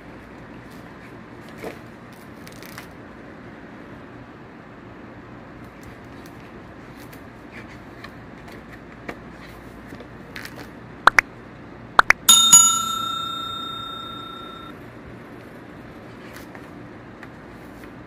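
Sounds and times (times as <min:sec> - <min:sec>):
bell ding: 0:12.1 - 0:14.7.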